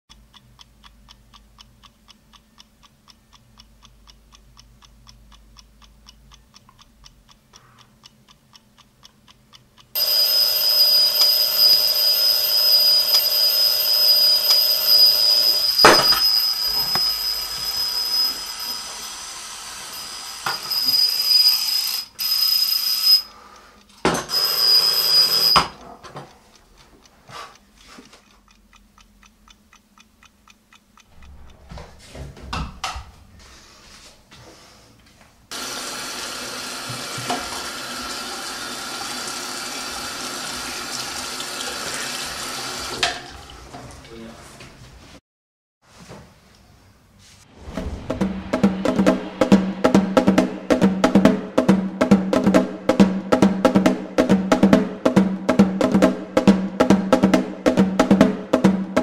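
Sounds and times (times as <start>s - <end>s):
alarm clock ticking: 0.1s - 25.8s, 26.5s - 32.0s, 47.9s - 59.0s
alarm clock bell ringing: 10.0s - 23.4s, 24.2s - 25.8s.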